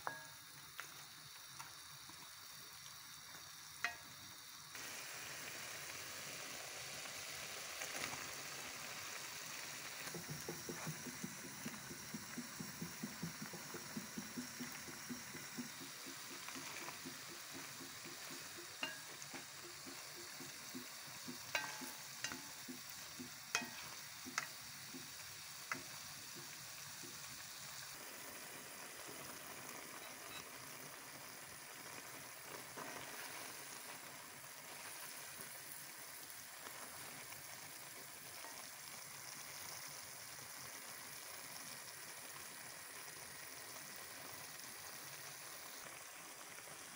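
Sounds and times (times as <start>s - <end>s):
food sizzling in a pan: 0.0s - 46.9s
water boiling: 0.0s - 46.9s
utensil clicking against pan: 9.9s - 27.3s.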